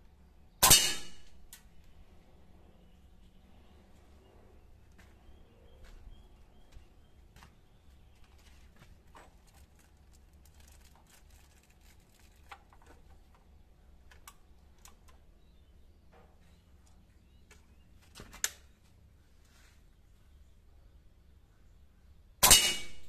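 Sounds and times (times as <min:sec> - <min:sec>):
sharp metallic click: 0:00.6 - 0:01.7, 0:22.4 - 0:23.0
air rifle clicks and handling: 0:18.2 - 0:18.8.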